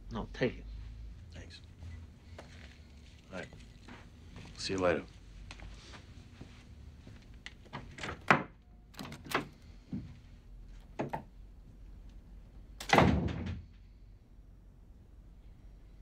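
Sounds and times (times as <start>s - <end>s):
wooden door shutting with thud: 12.8s - 13.7s.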